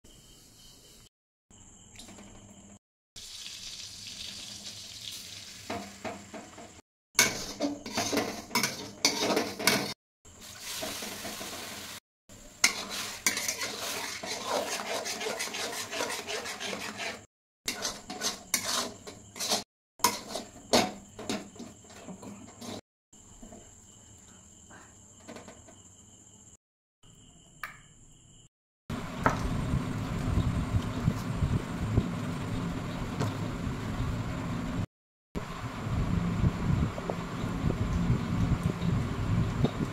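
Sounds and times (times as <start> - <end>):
water pouring: 3.2 - 5.7
food sizzling in butter: 3.2 - 6.3, 10.3 - 20.6
spatula scraping metal pan: 7.2 - 11.7, 12.6 - 22.8.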